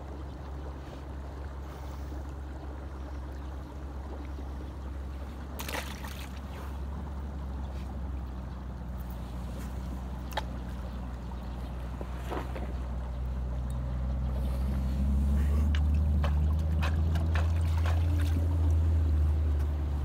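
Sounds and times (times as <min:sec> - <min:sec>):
river water washing: 0:00.0 - 0:20.0
fish splashing in water: 0:05.4 - 0:07.1, 0:14.4 - 0:19.2.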